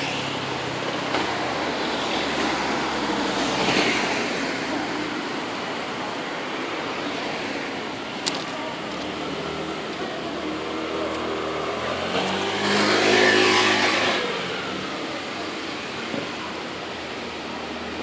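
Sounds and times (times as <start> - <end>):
vehicle driving past: 10.6 - 14.8.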